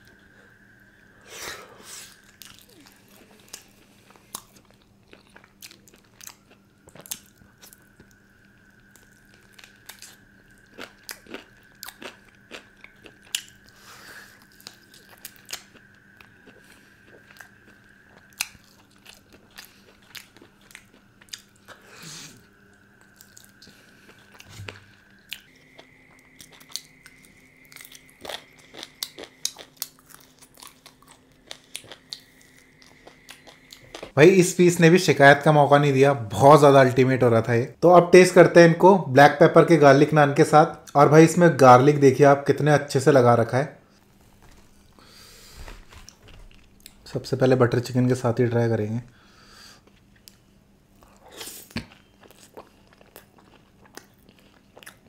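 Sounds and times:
person chewing chicken: 0:02.0 - 0:34.2, 0:51.0 - 0:55.0.

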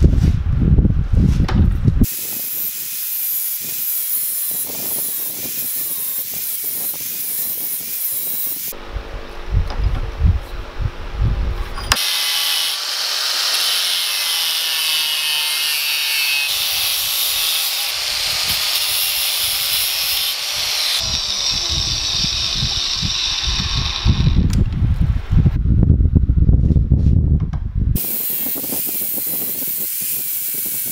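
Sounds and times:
angle grinder cutting steel: 0:02.0 - 0:08.8, 0:11.9 - 0:24.5, 0:28.0 - 0:30.9.

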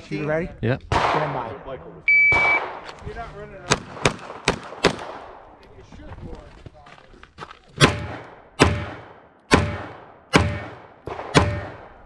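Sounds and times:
pistol shots echoing: 0:00.9 - 0:01.4, 0:02.3 - 0:02.8, 0:03.7 - 0:05.4, 0:07.8 - 0:12.0.

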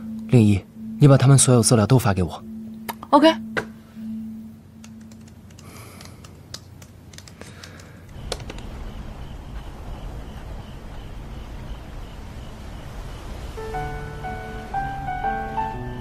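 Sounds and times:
laptop keyboard typing: 0:04.8 - 0:08.7.

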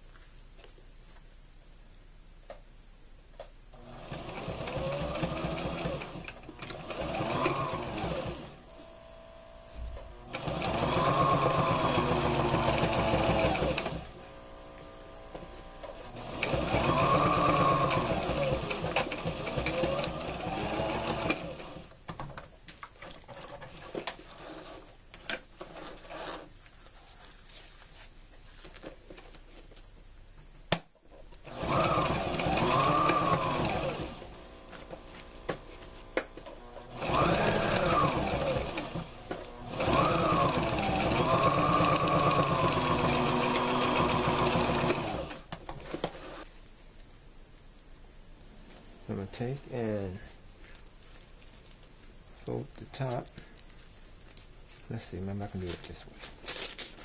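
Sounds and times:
sewing machine stitching: 0:03.8 - 0:08.6, 0:10.2 - 0:14.2, 0:15.8 - 0:22.0, 0:23.4 - 0:24.9, 0:25.6 - 0:26.5, 0:31.4 - 0:35.6, 0:36.4 - 0:46.5.

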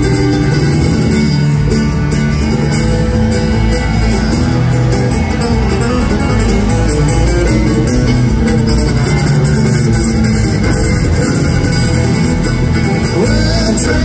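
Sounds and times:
acoustic guitar: 0:00.0 - 0:14.0
fiddle: 0:00.0 - 0:14.0
mandolin: 0:00.0 - 0:14.0
upright bass: 0:00.0 - 0:14.0.

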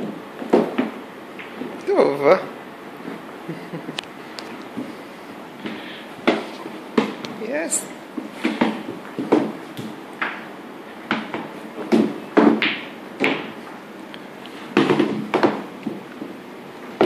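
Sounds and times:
dog pawing balls on wooden board: 0:00.0 - 0:01.8, 0:05.6 - 0:07.4, 0:08.1 - 0:13.8, 0:14.5 - 0:16.4.

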